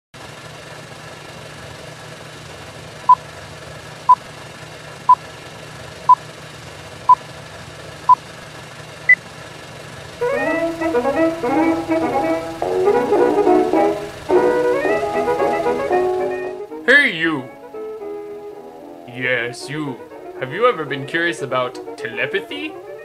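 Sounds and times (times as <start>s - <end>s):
low hum and hiss: 0.4s - 23.0s
brass music: 10.2s - 23.0s.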